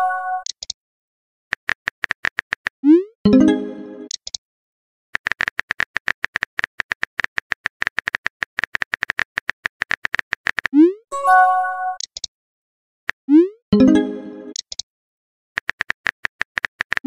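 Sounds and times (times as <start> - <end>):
phone keyboard typing clicks: 5.2 - 10.8, 12.0 - 12.3, 14.5 - 14.8, 15.6 - 17.0.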